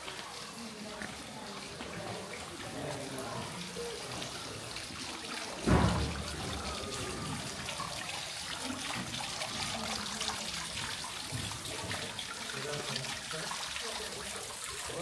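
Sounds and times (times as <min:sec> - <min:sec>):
water trickling: 0:00.0 - 0:15.0
low thump: 0:05.6 - 0:06.5.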